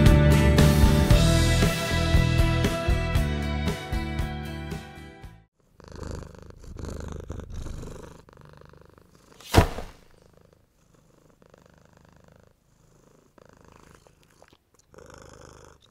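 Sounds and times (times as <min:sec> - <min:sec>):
cat purring: 0:05.6 - 0:15.9
sharp loud thump: 0:09.5 - 0:10.1.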